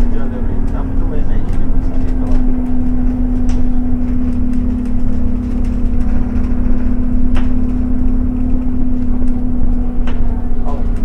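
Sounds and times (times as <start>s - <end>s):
bus body rattles: 0.0s - 11.0s
bus engine drone: 0.0s - 11.0s
road rumble: 0.0s - 11.0s.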